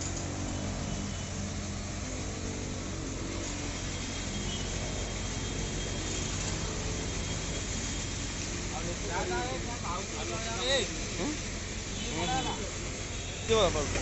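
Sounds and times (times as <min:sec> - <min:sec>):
truck engine humming: 0:00.0 - 0:14.0.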